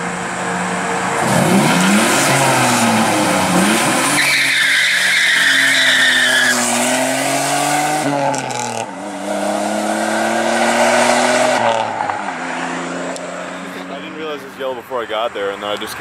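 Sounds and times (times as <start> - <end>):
car engine revving: 0.0 - 14.2
tyres squealing: 1.3 - 6.8.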